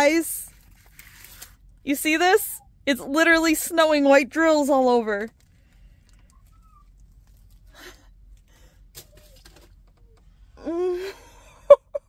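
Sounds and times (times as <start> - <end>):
woman laughing: 10.6 - 12.0.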